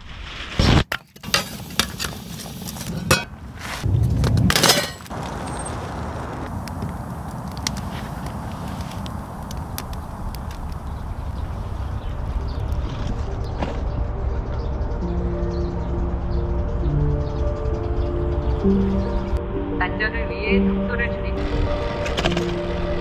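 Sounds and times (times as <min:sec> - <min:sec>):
campfire hissing and crackling: 0:05.0 - 0:12.7.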